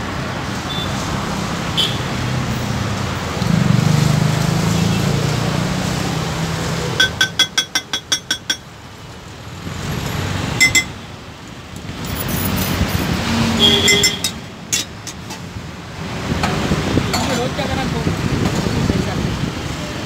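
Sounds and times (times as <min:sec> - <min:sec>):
steel utensil clinking on cookware: 0:07.0 - 0:08.7, 0:10.6 - 0:11.0, 0:13.9 - 0:15.4.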